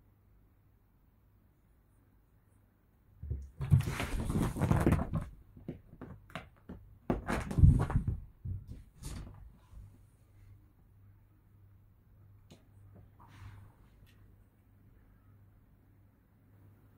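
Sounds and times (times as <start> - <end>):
cat thumping on sofa: 3.2 - 6.2, 7.1 - 9.5
fabric rustling: 3.6 - 5.4.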